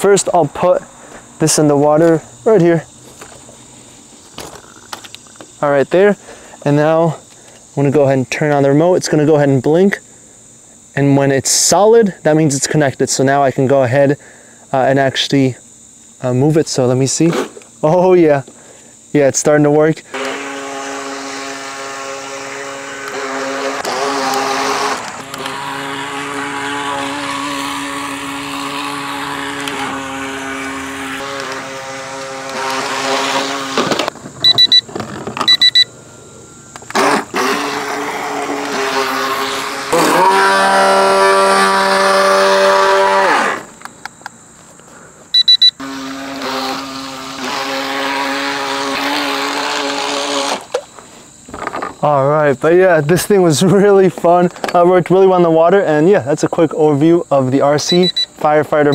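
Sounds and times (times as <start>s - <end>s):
electric motor whining: 20.1s - 43.9s, 45.4s - 50.8s
short high beeps: 34.4s - 34.8s, 35.5s - 35.9s, 45.4s - 45.8s, 57.8s - 58.3s.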